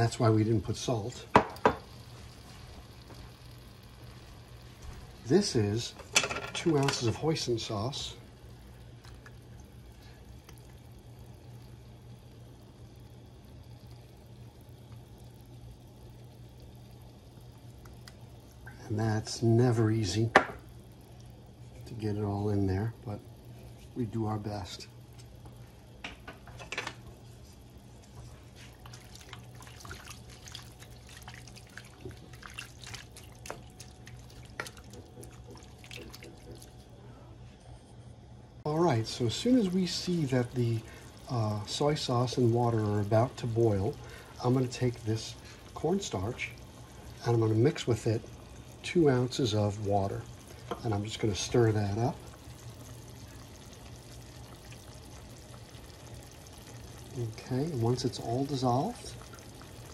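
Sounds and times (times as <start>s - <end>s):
steak sizzling in pan: 0.0s - 19.1s, 39.1s - 59.9s
low steady hum: 0.0s - 59.9s.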